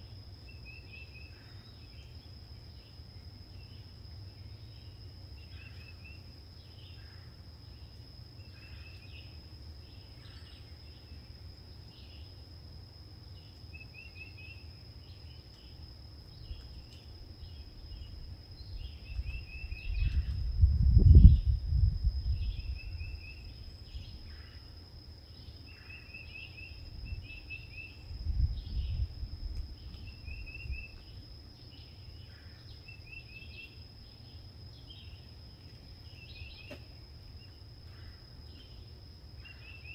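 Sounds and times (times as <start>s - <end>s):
high-pitched insect drone: 13.7s - 39.9s.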